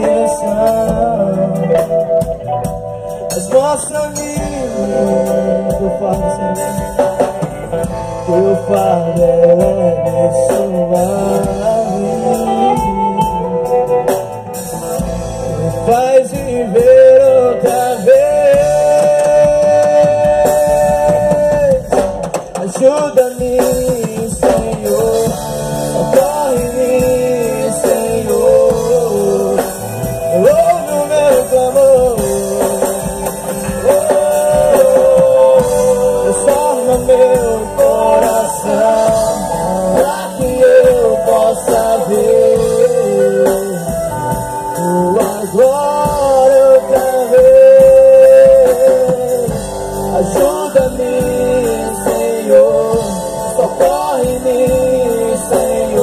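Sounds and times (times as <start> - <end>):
drums: 0.0 - 56.0
electric bass: 0.0 - 56.0
electric guitars: 0.0 - 56.0
man singing: 0.0 - 56.0.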